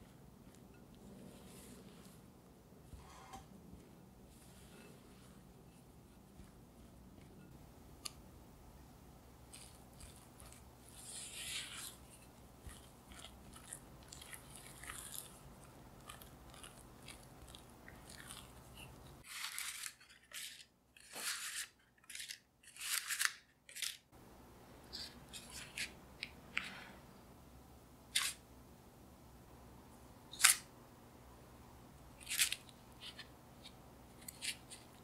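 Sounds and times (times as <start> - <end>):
spatula folding wet batter: 9.2 - 24.0.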